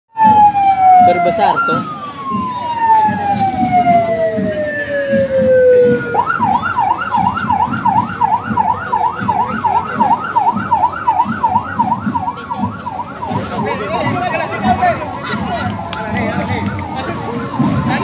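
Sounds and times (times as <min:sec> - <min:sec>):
electronic siren wailing: 0:00.1 - 0:15.9.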